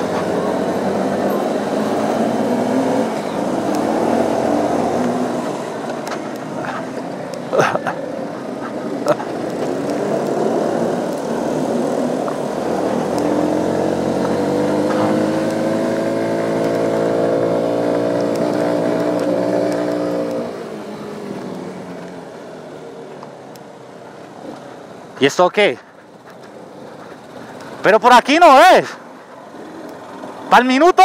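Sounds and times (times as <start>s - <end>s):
motorcycle engine revving: 0.0s - 22.4s.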